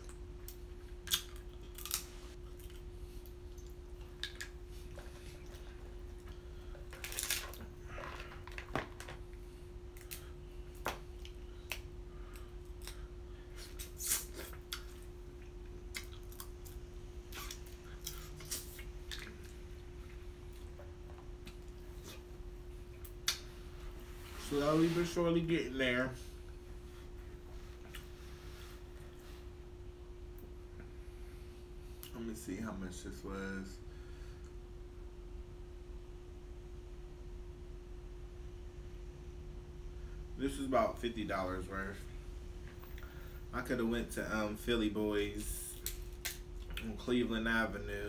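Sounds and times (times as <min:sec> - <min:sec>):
chewing: 0:00.0 - 0:08.4, 0:11.2 - 0:22.3
faint hum: 0:00.0 - 0:48.0
crab shells cracking: 0:01.0 - 0:02.1.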